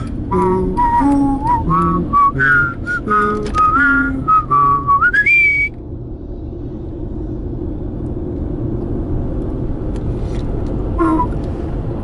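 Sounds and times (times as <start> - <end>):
car road rumble inside cabin: 0.0 - 12.0
whistled note: 0.7 - 5.8.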